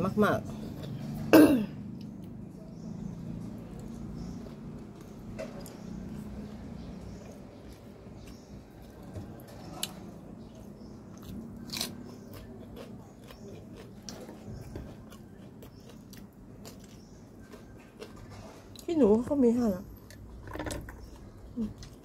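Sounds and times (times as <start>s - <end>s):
person chewing: 7.2s - 18.9s.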